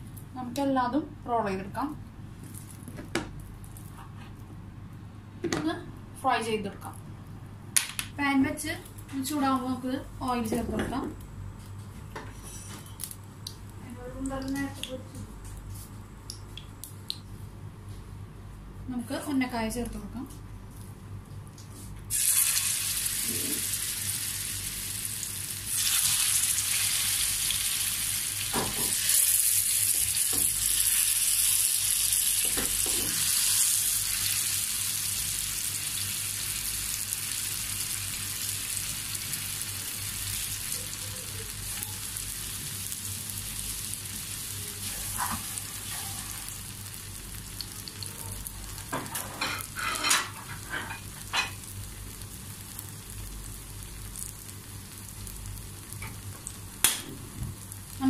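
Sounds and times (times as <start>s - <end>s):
oil sizzling in a frying pan: 22.1s - 56.9s.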